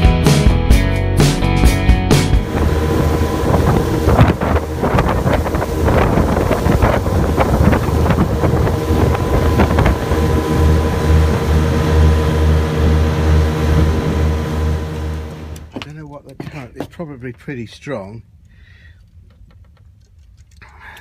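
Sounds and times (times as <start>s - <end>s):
outboard motors droning: 2.2s - 15.8s
wind on microphone: 2.4s - 14.2s
water rushing past hull: 2.4s - 15.6s.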